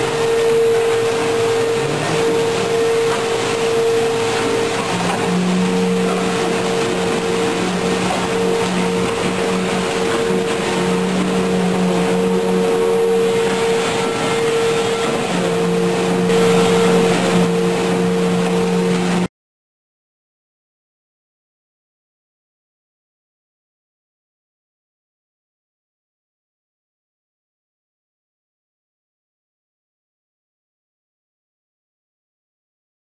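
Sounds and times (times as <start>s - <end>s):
construction machinery drone: 0.0s - 19.3s.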